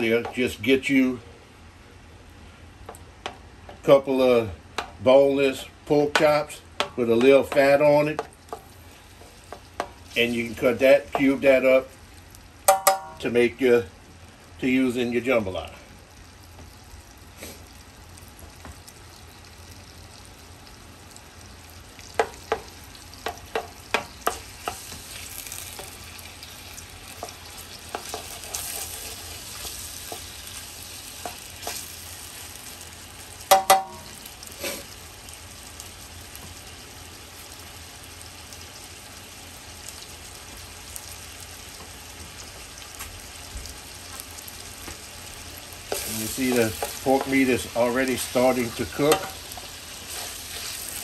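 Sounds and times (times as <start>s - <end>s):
pork sizzling in hot oil: 2.9s - 13.3s, 16.0s - 51.0s
utensil striking pot: 6.0s - 8.6s, 12.7s - 13.2s, 33.5s - 34.2s, 45.9s - 47.4s, 49.0s - 49.4s.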